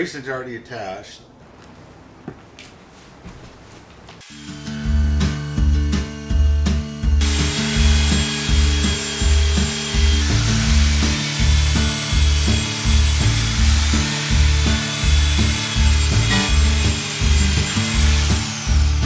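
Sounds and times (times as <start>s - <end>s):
electric drill whine: 4.2s - 19.0s
drill bit rasping wood: 7.2s - 19.0s.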